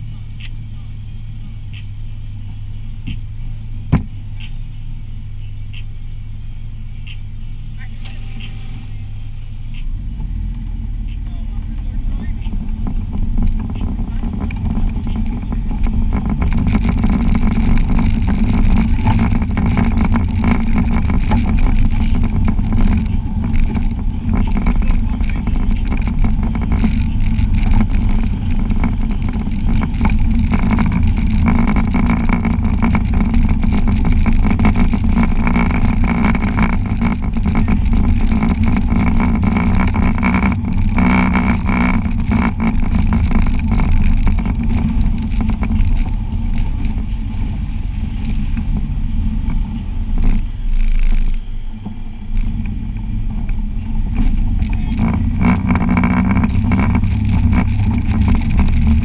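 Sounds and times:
vehicle engine running: 0:00.0 - 0:59.0
short clicks and rattles: 0:13.4 - 0:47.0, 0:50.2 - 0:51.5, 0:54.2 - 0:59.0.

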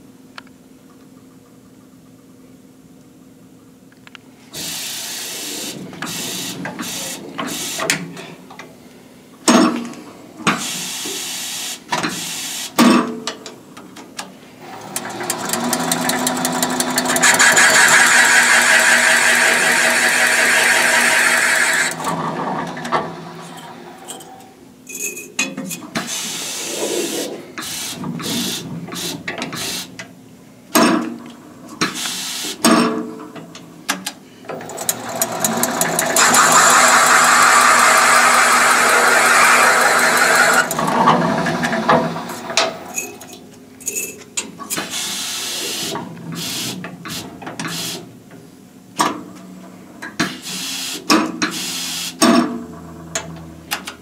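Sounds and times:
machine cutter cutting metal: 0:04.6 - 0:07.9, 0:14.7 - 0:23.8, 0:34.6 - 0:43.2.

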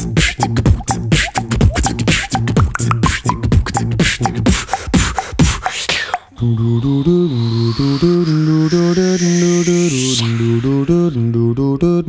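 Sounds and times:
beatboxed kick: 0:00.0 - 0:11.9
beatboxed hi-hat and snare: 0:00.0 - 0:12.0
low bass hum: 0:06.4 - 0:12.0.

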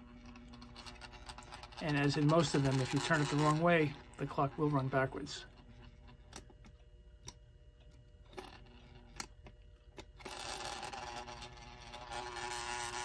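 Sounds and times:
clock motor buzz and gear rattle: 0:00.0 - 0:13.0.

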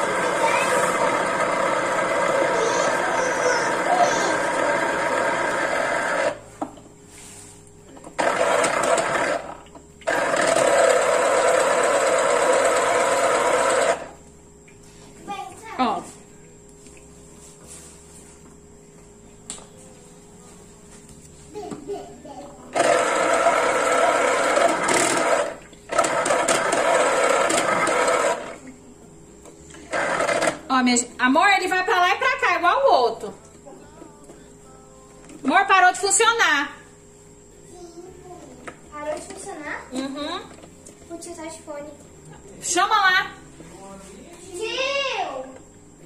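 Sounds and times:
electric juicer motor running: 0:00.0 - 0:06.4, 0:08.0 - 0:14.2, 0:22.7 - 0:28.8, 0:29.7 - 0:30.8.

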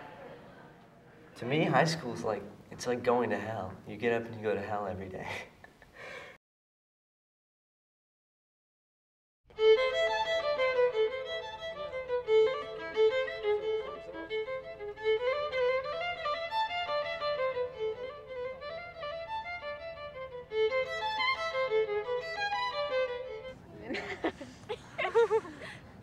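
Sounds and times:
violin melody: 0:09.5 - 0:23.7.

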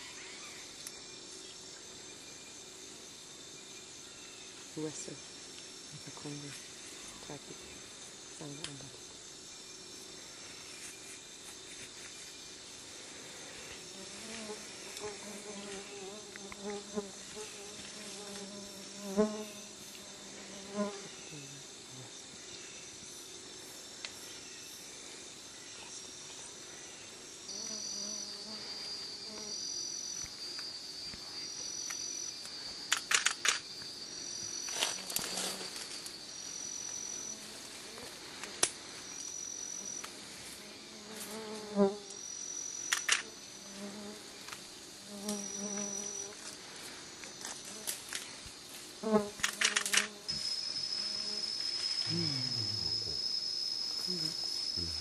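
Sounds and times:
insect chorus: 0:00.0 - 0:55.0
short high insect trills: 0:04.0 - 0:55.0
sharp snaps and cracks: 0:49.4 - 0:50.1.

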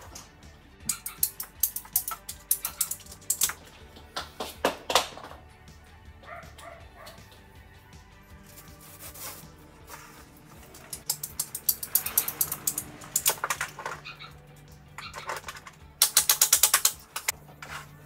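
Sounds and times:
ratcheting pipe cutter clicking: 0:00.9 - 0:03.6, 0:10.7 - 0:14.0, 0:15.1 - 0:17.4.

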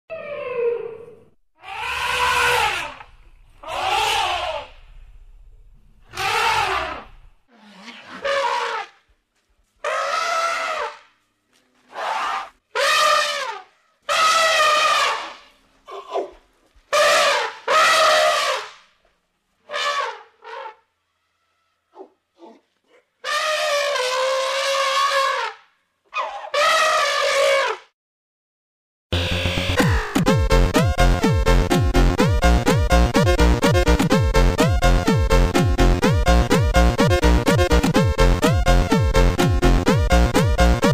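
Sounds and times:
elephant trumpeting: 0:01.6 - 0:04.9, 0:06.0 - 0:09.0, 0:09.8 - 0:11.1, 0:11.9 - 0:15.5, 0:16.9 - 0:18.7, 0:19.7 - 0:22.1, 0:23.2 - 0:25.6, 0:26.2 - 0:27.8.

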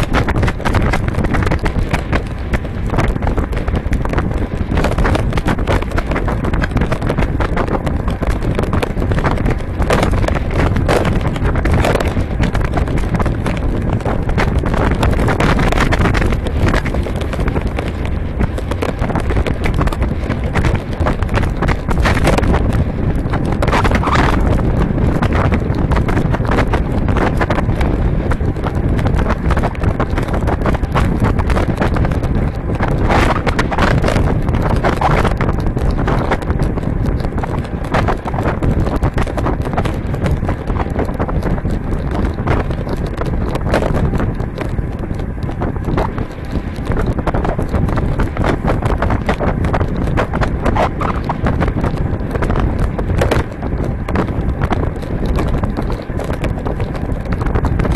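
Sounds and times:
tyres rumbling on road: 0:00.0 - 0:57.9
wind buffeting microphone: 0:00.0 - 0:57.9.

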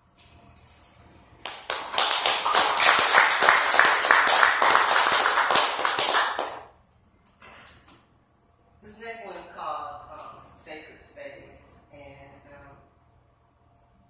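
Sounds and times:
audience applauding: 0:01.4 - 0:06.6
person clapping close by: 0:01.4 - 0:06.7.

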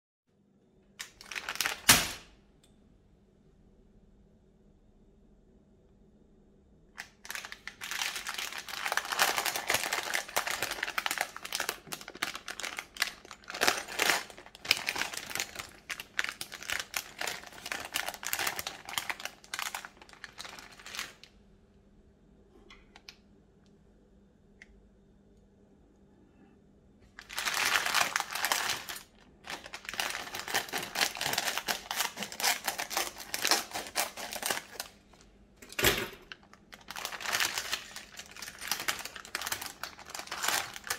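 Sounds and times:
plastic bag crinkling: 0:01.0 - 0:02.2, 0:07.0 - 0:21.3, 0:27.2 - 0:35.3, 0:36.2 - 0:40.9.

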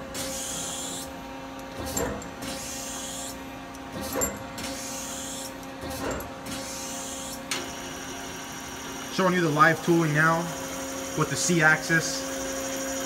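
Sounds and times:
machine turret whirring clunk: 0:01.7 - 0:02.6, 0:03.9 - 0:04.8, 0:05.8 - 0:06.8.

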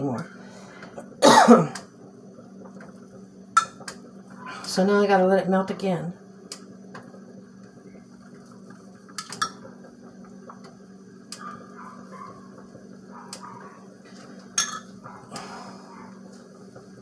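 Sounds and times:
steady low hum: 0:00.0 - 0:17.0
spoon clinking against pot: 0:14.6 - 0:14.9.

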